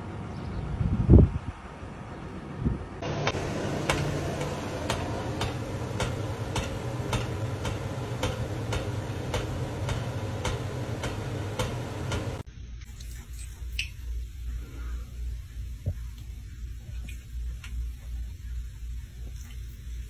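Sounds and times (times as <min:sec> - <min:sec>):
steady low hum: 0:00.0 - 0:20.0
clock-like ticking: 0:03.9 - 0:12.4.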